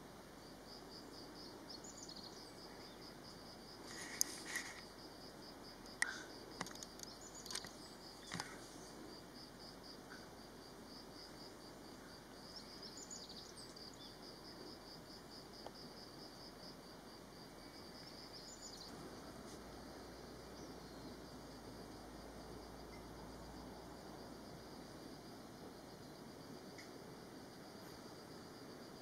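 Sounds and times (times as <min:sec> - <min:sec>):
faint outdoor background noise: 0:00.0 - 0:29.0.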